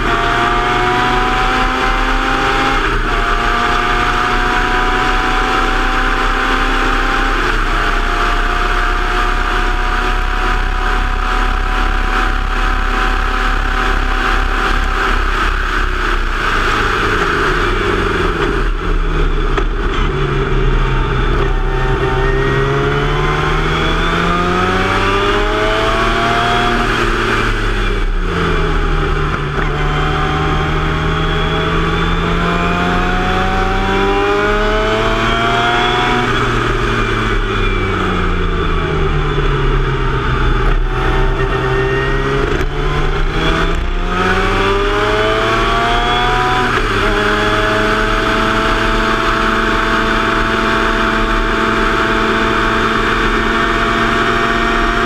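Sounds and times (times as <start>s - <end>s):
race car engine at speed: 0.0s - 55.0s.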